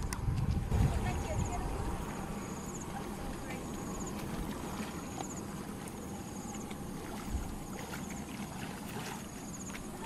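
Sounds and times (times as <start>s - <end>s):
water sloshing and splashing: 0.0s - 10.0s.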